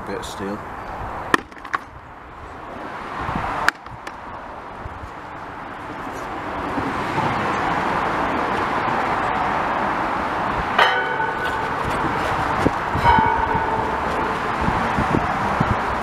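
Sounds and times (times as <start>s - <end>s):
road traffic rumbling: 0.0s - 16.0s
sudden ringing: 10.8s - 16.0s.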